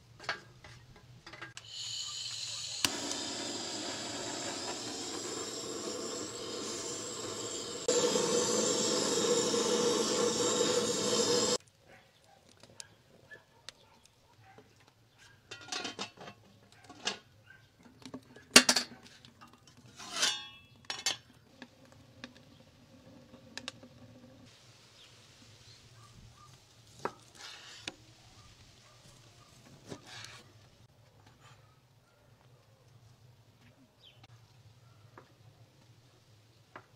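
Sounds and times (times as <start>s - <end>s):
cookware clinking and scraping: 15.5s - 17.2s, 19.8s - 21.3s.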